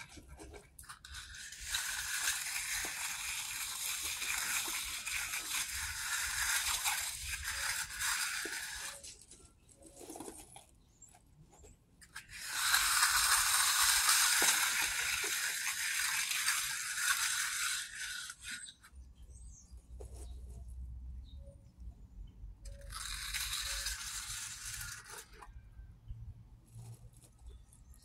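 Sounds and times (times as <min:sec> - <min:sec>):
trowel scraping wet concrete: 0:00.0 - 0:10.6, 0:12.0 - 0:19.5, 0:22.7 - 0:25.4.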